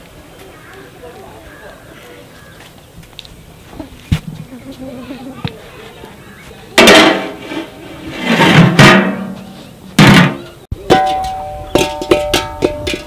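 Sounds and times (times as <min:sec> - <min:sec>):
steel pot and lid clanking: 0:06.8 - 0:13.0.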